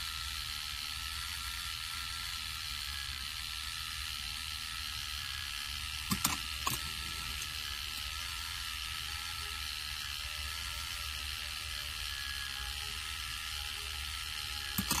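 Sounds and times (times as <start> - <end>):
motor and gears whirring: 0.0 - 15.0
sharp plastic clicks: 6.1 - 6.8.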